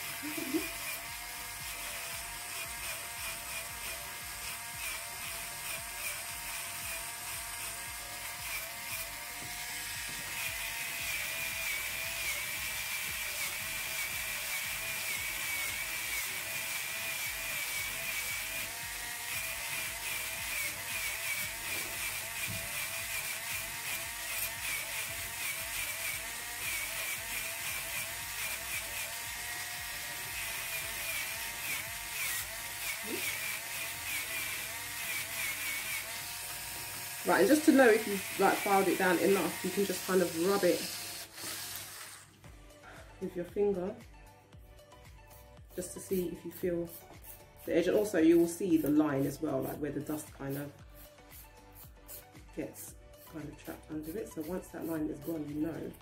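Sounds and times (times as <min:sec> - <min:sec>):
electric nail drill whining: 0:00.0 - 0:42.8.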